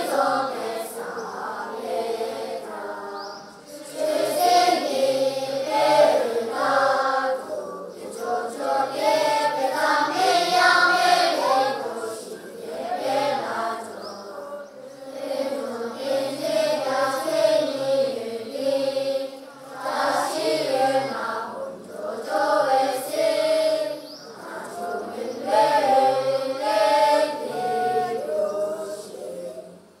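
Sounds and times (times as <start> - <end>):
children chanting in unison: 0.0 - 29.9.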